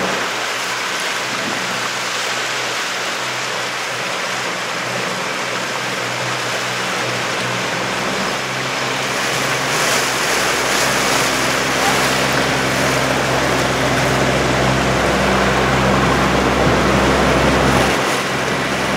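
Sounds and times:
outboard motor running: 0.0 - 18.9
rushing water: 0.0 - 18.9
wind: 0.0 - 18.9.

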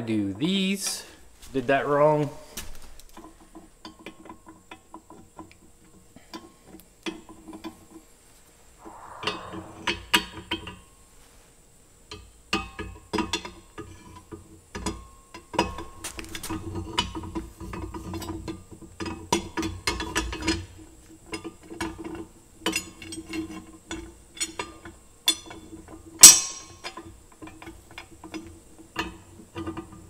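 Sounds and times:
metal scrape: 8.8 - 10.1.

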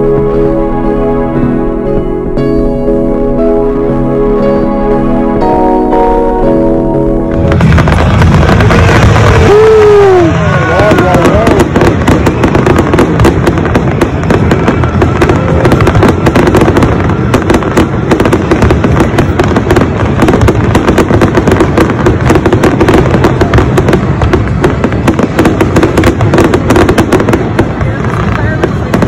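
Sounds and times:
fireworks bangs and crackles: 7.2 - 29.0.

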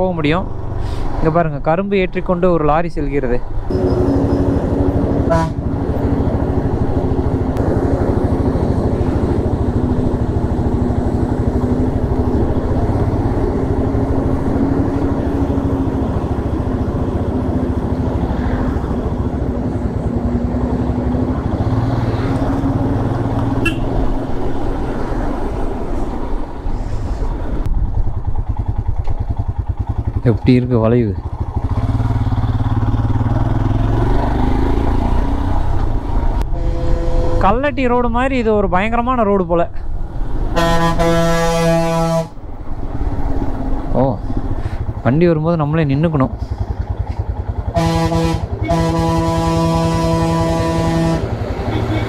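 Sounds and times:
road and wind noise: 0.0 - 52.0
motorcycle engine running: 3.7 - 18.3, 27.7 - 35.9, 44.4 - 52.0.

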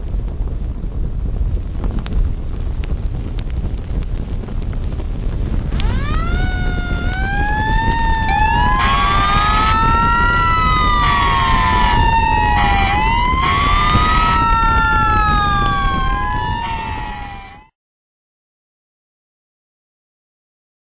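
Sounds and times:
steady low rumble: 0.0 - 17.6
emergency sirens wailing: 5.8 - 17.7
harsh pulsing siren bursts: 5.8 - 17.7.

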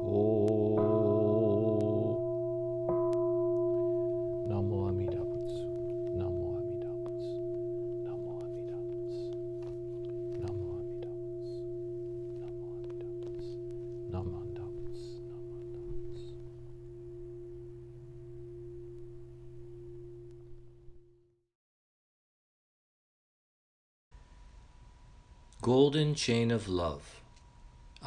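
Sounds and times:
bowl bell ringing: 0.0 - 21.3.

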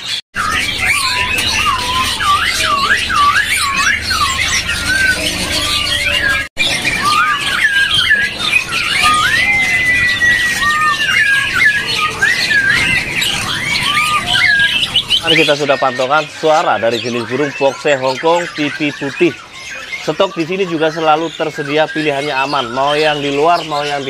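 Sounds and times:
bird singing whistled notes: 0.0 - 24.0.

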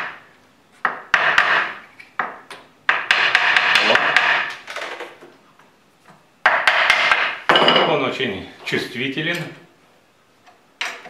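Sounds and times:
wooden mallet knocking on wood: 0.8 - 4.5, 6.4 - 7.9.

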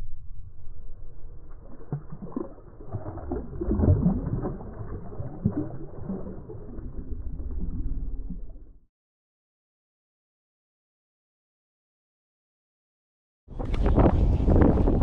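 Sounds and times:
low rumble: 0.0 - 8.9
fish splashing in water: 1.6 - 6.8.

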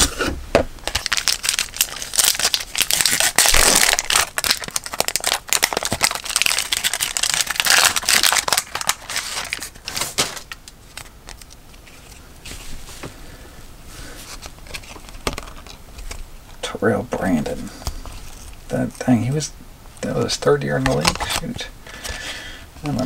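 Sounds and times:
card pack wrapper crinkling and tearing: 0.8 - 12.2, 14.2 - 16.3, 20.7 - 22.2.

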